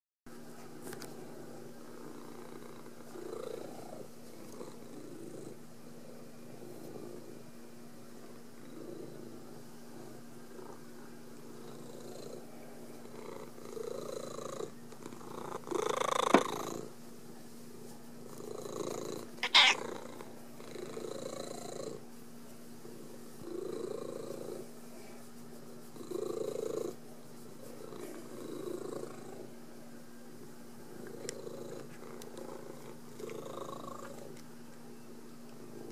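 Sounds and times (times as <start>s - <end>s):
cat purring: 1.2s - 7.5s, 8.2s - 16.9s, 18.2s - 22.0s, 22.8s - 29.6s, 30.9s - 34.4s.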